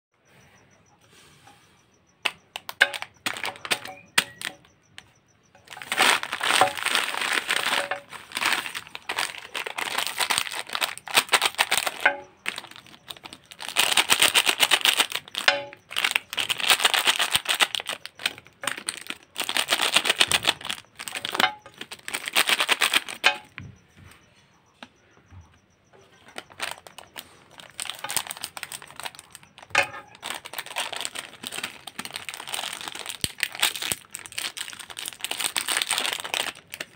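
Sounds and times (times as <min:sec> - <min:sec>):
plastic wrappers crinkling: 0:02.2 - 0:23.6, 0:26.2 - 0:36.9.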